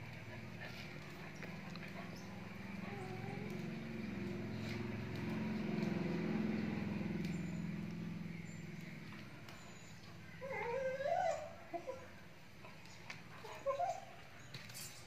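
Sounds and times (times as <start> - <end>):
dog whining: 2.7 - 3.7, 9.7 - 12.2, 12.8 - 14.2.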